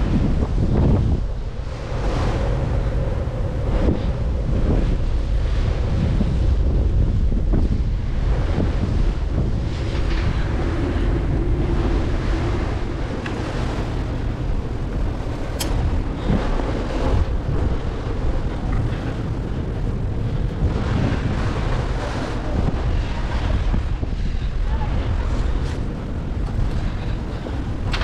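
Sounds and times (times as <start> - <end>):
wind buffeting microphone: 0.0 - 28.0
sharp click: 15.6 - 15.8.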